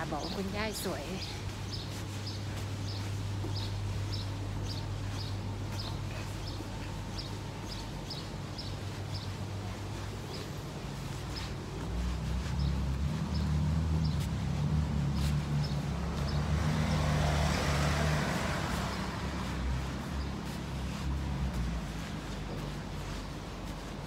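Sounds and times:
vehicle driving past: 12.6 - 21.2.

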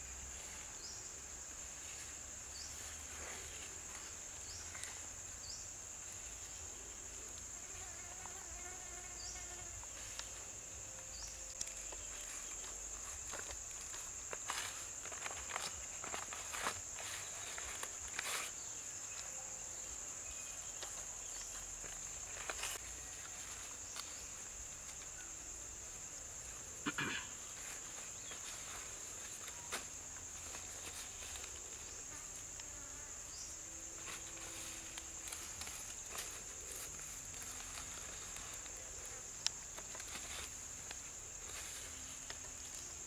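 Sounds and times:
high-pitched insect chorus: 0.0 - 43.0
banana leaves rustling: 9.8 - 19.3, 20.4 - 26.8, 27.4 - 32.6, 33.6 - 43.0.

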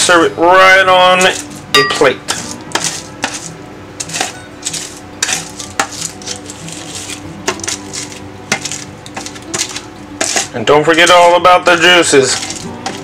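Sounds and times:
spatula scraping baking tray: 2.3 - 13.0
aluminium foil crinkling: 4.0 - 13.0.

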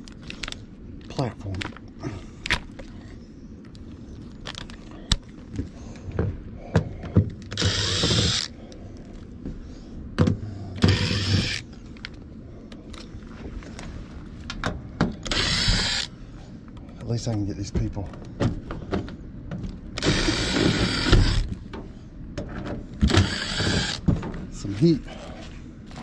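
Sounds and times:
impact driver hammering screws: 7.5 - 8.5, 10.8 - 11.6, 15.2 - 16.1, 20.0 - 21.6, 23.0 - 24.1.

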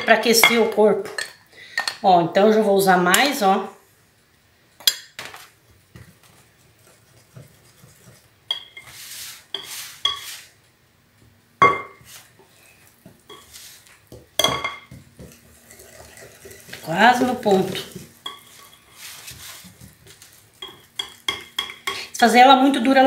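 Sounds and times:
whisk swishing through batter: 6.1 - 10.6, 15.4 - 20.5.

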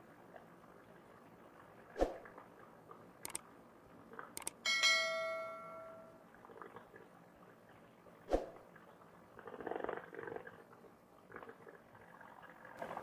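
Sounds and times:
mouse clicks: 3.2 - 3.4, 4.4 - 4.6
notification bell ding: 4.7 - 6.2.

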